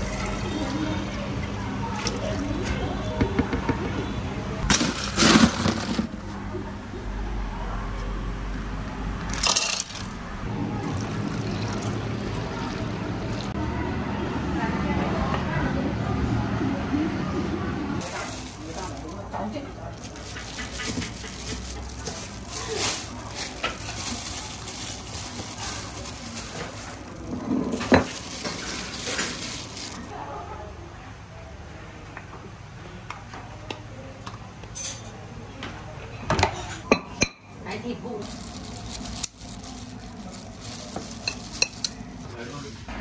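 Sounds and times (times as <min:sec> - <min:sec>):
kitchen utensils clinking: 0:09.2 - 0:10.2, 0:20.0 - 0:30.1, 0:38.2 - 0:42.4
food sizzling: 0:10.6 - 0:13.6, 0:20.0 - 0:30.1.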